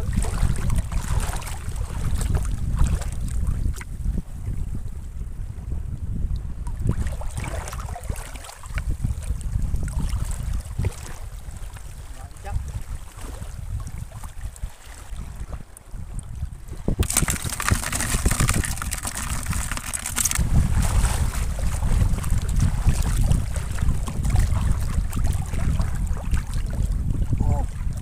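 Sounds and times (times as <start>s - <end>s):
wind rumbling on microphone: 0.0s - 28.0s
water splashing around legs: 17.0s - 26.9s.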